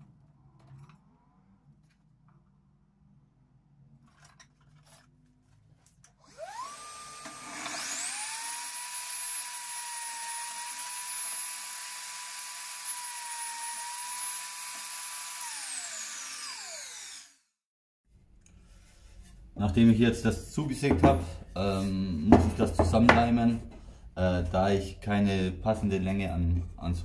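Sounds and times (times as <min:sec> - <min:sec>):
table saw motor running: 0:06.3 - 0:17.5.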